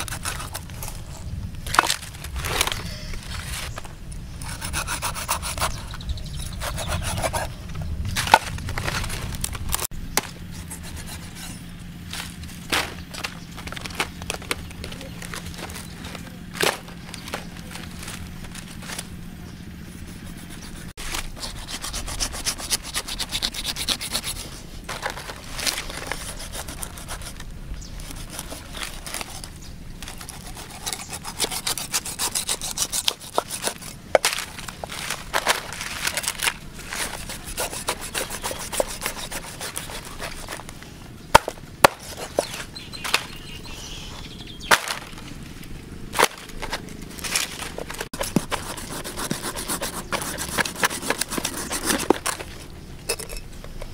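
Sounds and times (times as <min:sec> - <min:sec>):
cleaver rasping wet skin: 0:37.0 - 0:40.6, 0:48.2 - 0:52.2.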